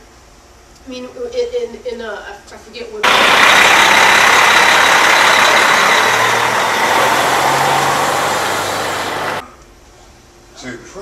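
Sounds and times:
diesel truck idling: 0:03.0 - 0:09.4.

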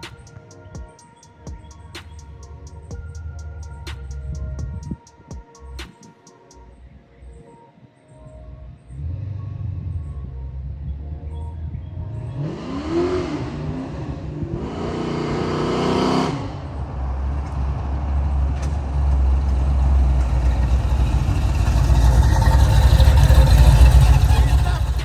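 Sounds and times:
deep exhaust rumble: 0:01.4 - 0:05.0, 0:08.5 - 0:25.0
car engine revving: 0:08.7 - 0:25.0.

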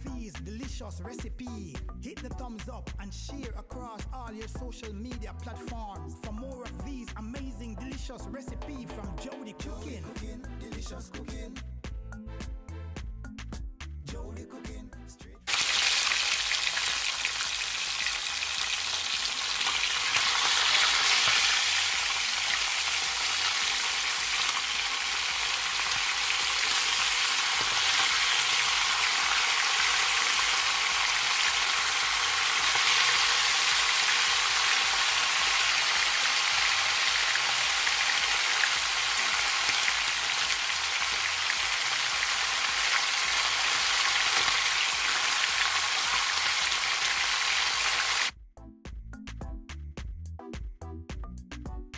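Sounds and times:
fish sizzling in hot oil: 0:15.5 - 0:48.3.

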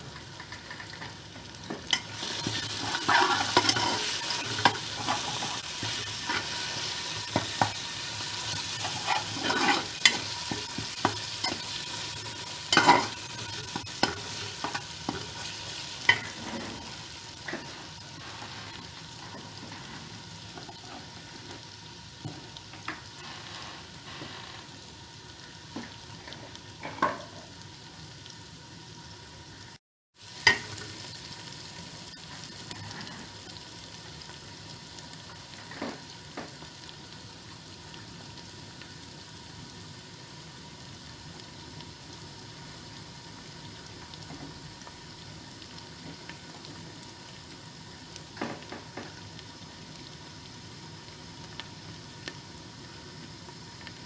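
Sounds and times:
onions sizzling in oil: 0:00.0 - 0:54.0
metal spatula scraping a pot: 0:02.2 - 0:06.6, 0:08.5 - 0:10.8.

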